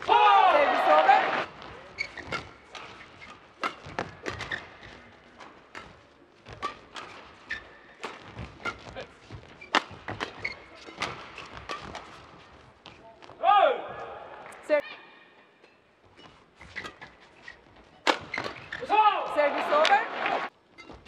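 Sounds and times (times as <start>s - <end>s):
shoe squeaks on court floor: 1.6s - 5.1s, 6.5s - 13.0s, 15.6s - 18.9s, 20.6s - 21.0s
racket striking shuttlecock: 2.2s - 4.7s, 5.4s - 12.2s, 18.0s - 18.8s.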